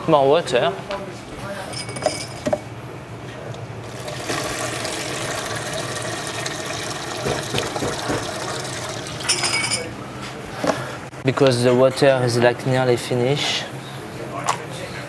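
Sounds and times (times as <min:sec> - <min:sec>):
water pouring into pan: 0:03.9 - 0:09.4.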